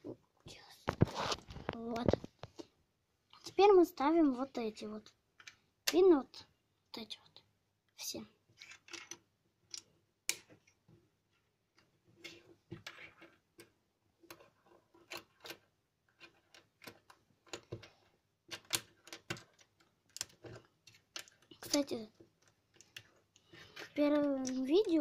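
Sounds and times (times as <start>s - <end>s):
plastic bricks clicking together: 8.6s - 10.5s, 18.5s - 25.0s.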